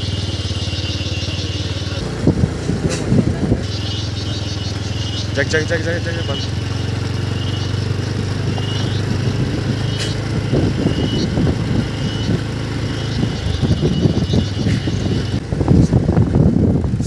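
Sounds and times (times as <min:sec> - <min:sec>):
vehicle engine humming: 0:00.0 - 0:17.0
wind rumble on microphone: 0:02.0 - 0:03.9, 0:08.1 - 0:17.0.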